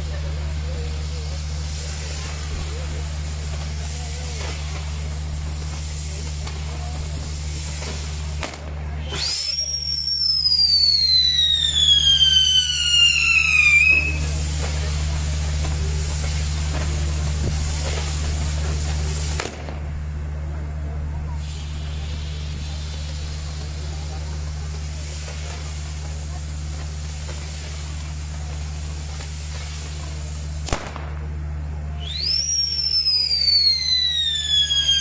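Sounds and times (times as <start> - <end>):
hissing of burning fireworks: 0.0 - 35.0
firework whistle sliding down: 9.0 - 14.8, 32.0 - 35.0.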